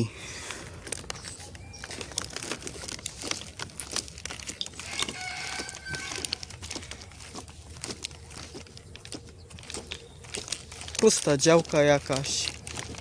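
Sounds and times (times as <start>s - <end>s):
footsteps on dirt: 0.4s - 13.0s
rooster crowing: 4.8s - 6.5s.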